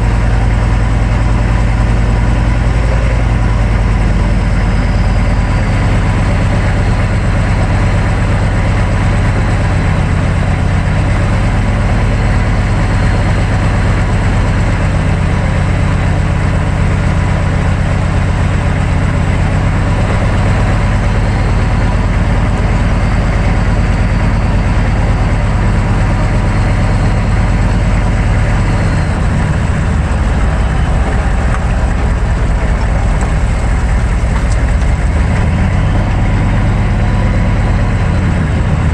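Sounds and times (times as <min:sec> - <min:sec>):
diesel pickup engine rumble: 0:00.0 - 0:38.9.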